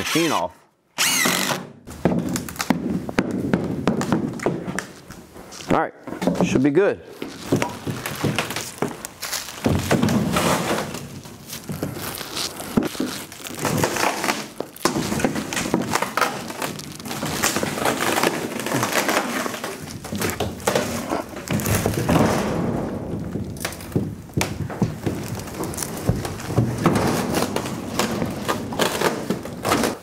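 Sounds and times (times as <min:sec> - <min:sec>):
creaks knocks and clunks: 0:06.1 - 0:12.0, 0:14.6 - 0:30.0
wheels rolling on wood: 0:07.2 - 0:30.0.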